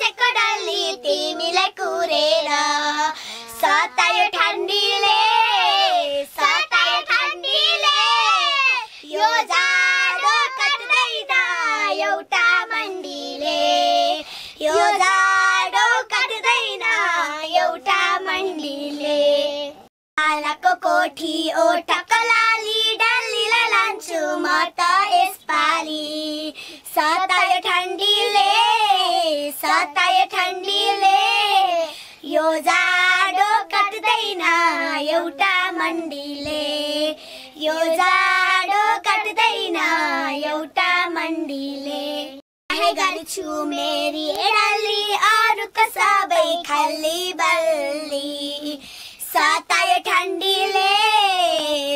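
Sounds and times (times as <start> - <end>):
girls singing together: 0.0 - 51.9.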